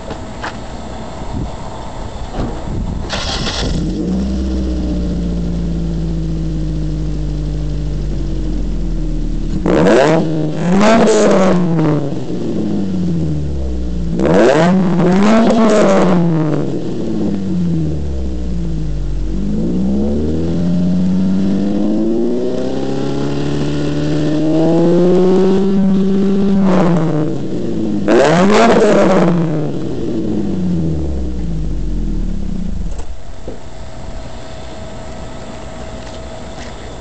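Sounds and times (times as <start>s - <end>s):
car engine idling: 0.0s - 14.2s, 16.6s - 21.5s, 29.7s - 37.0s
car engine revving: 3.0s - 33.2s.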